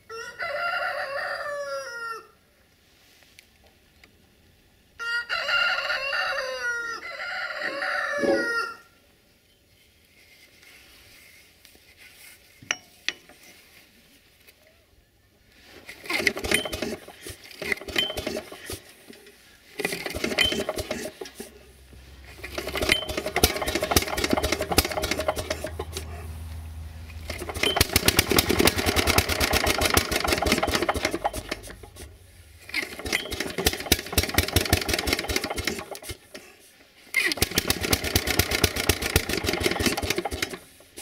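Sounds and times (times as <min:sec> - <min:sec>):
rooster crowing: 0:00.0 - 0:02.4, 0:05.0 - 0:09.0
recoil rope pull-start clatter: 0:15.9 - 0:26.4, 0:27.1 - 0:36.4, 0:37.2 - 0:41.0
mower engine running: 0:16.0 - 0:18.9, 0:19.7 - 0:36.3, 0:37.2 - 0:40.8.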